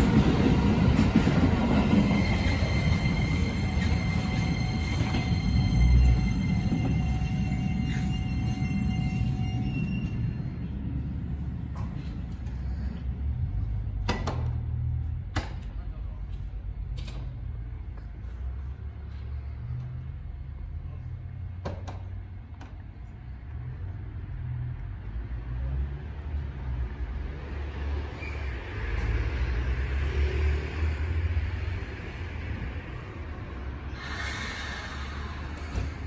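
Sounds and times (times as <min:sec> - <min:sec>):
electric train low rumble: 0:00.0 - 0:36.0
air hiss: 0:33.9 - 0:36.0.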